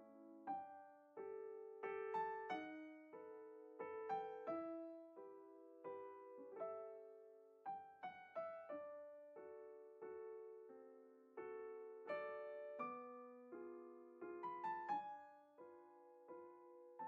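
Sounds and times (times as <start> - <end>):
soft solo piano: 0.0 - 17.0.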